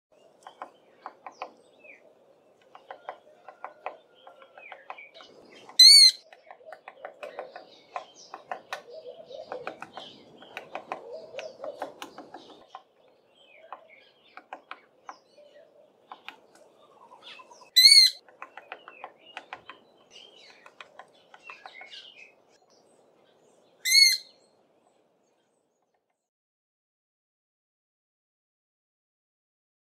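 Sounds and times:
high-pitched bird calls: 0.2 - 22.6, 23.8 - 24.4
woodpecker tapping on branch: 0.3 - 17.5, 18.2 - 22.5.

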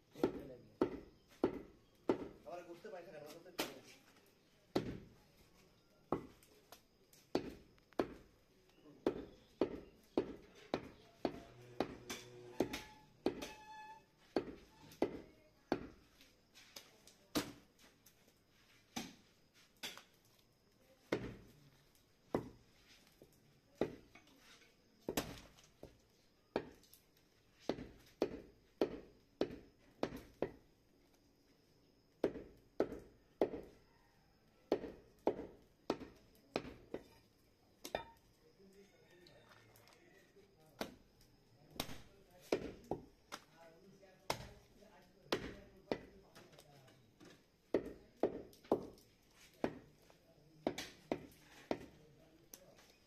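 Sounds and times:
cleaver chopping meat on wood: 0.2 - 2.4, 9.0 - 13.5, 32.2 - 33.7, 34.7 - 37.0, 44.3 - 44.5, 45.3 - 46.1, 47.7 - 49.0, 50.6 - 52.0.

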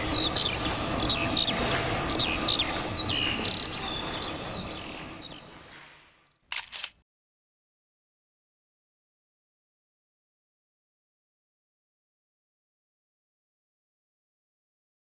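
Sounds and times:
birds chirping: 0.0 - 6.9
open-air background noise: 0.0 - 7.0
camera shutter clicks: 6.5 - 7.0.

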